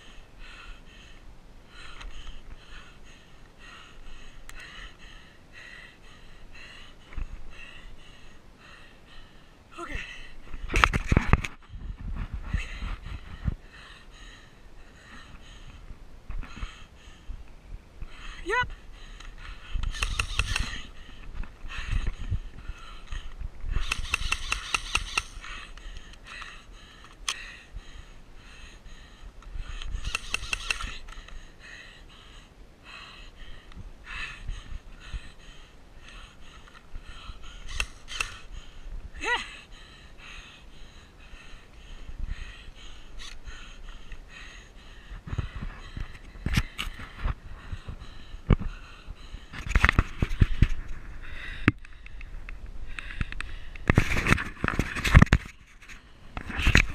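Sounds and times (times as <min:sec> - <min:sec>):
airsoft rifle bursts: 0:19.8 - 0:20.9, 0:23.8 - 0:25.6, 0:30.0 - 0:31.1, 0:37.6 - 0:38.4.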